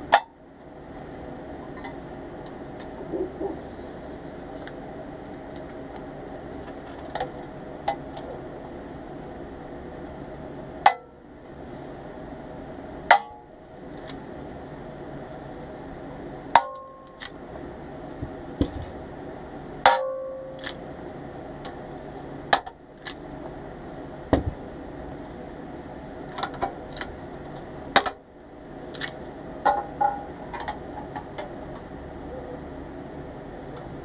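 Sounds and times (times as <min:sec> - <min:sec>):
clicks of parts and tools handled: 0:28.9 - 0:31.5.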